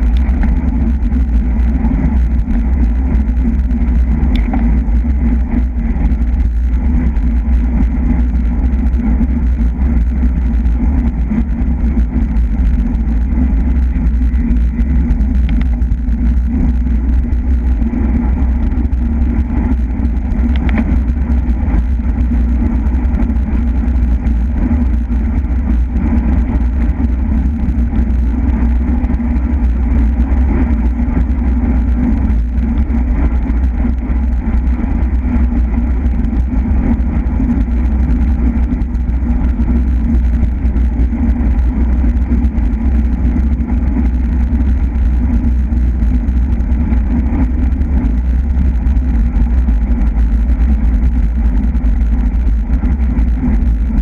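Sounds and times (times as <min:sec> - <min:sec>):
tyre noise on road: 0:00.0 - 0:54.0
wind rushing over microphone: 0:00.0 - 0:54.0
faint clicks: 0:04.2 - 0:04.7.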